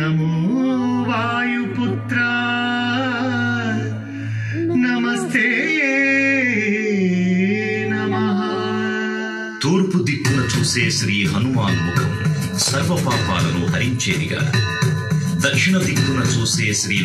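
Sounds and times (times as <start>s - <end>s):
man singing slow notes: 0.0s - 10.1s.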